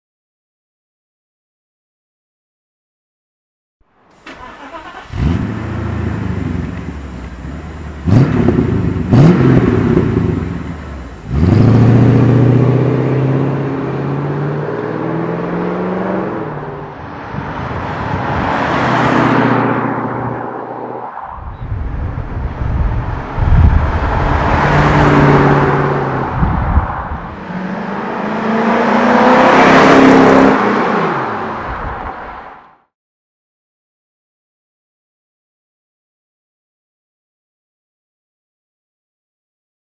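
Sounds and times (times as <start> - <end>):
car engine idling: 4.2 - 11.4
car pulling away loudly: 4.2 - 16.8, 22.3 - 32.2
engine revving: 4.2 - 21.0, 22.1 - 31.6
car driving by: 4.2 - 32.8.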